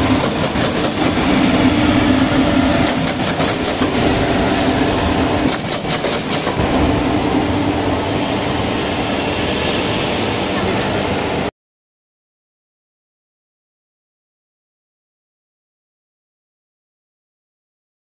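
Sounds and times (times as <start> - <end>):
rapid mechanical clattering: 0.0 - 1.4, 2.7 - 4.0, 5.4 - 6.6
machine mechanical hum: 0.0 - 11.5.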